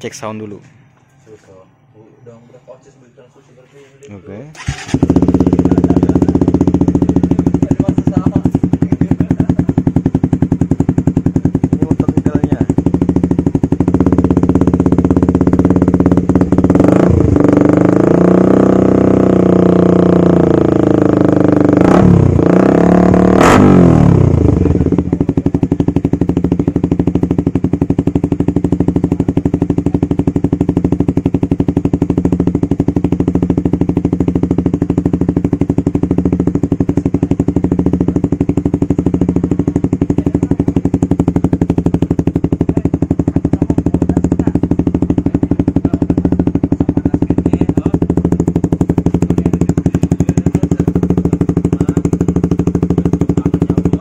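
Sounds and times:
motorcycle engine revving: 4.5 - 54.0
exhaust cracks: 23.1 - 54.0.

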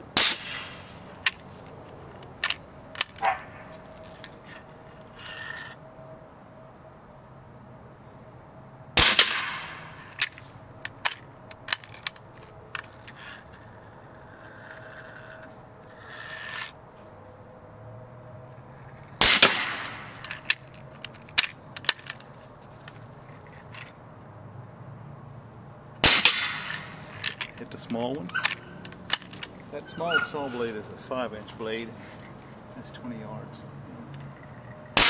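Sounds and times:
sharp clicks: 2.2 - 3.4, 9.1 - 13.3
air cannon blast: 19.2 - 20.1, 26.0 - 26.8.

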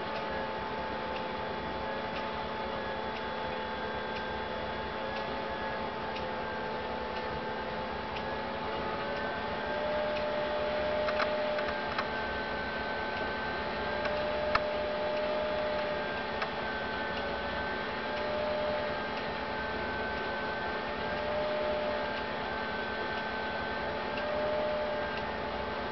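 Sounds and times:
faint wavering whine: 0.0 - 25.9
sharp clicks: 11.1 - 12.1.

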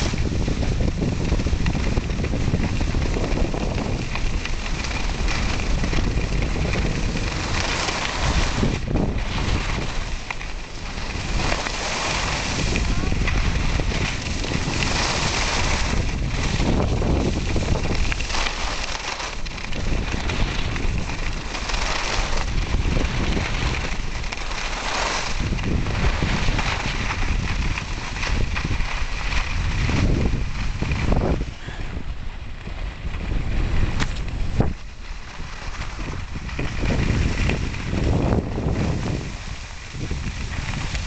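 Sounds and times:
skis scraping on snow: 0.0 - 41.0
wind buffeting microphone: 0.0 - 41.0.

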